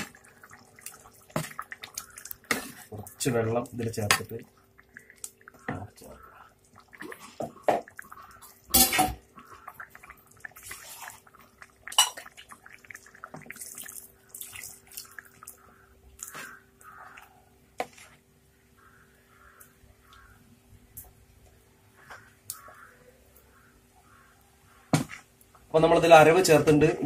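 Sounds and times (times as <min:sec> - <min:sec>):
ladle stirring curry in a pot: 0:00.0 - 0:13.8, 0:14.6 - 0:18.2
liquid sloshing: 0:00.0 - 0:18.2.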